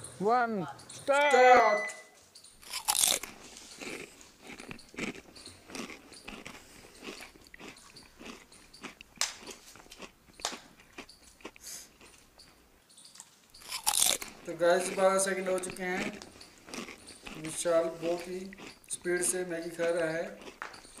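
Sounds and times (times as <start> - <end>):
man slurping and chewing noodles: 2.6 - 10.2, 16.0 - 19.1.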